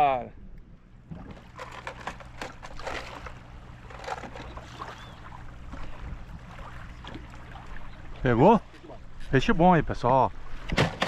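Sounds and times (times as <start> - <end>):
low steady hum: 0.0 - 11.0
water splashing and lapping: 1.0 - 9.3.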